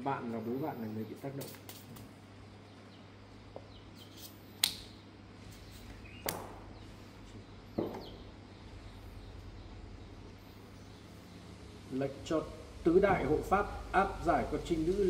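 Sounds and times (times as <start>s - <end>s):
faint low hum: 0.0s - 15.0s
sharp knocks: 7.8s - 8.2s.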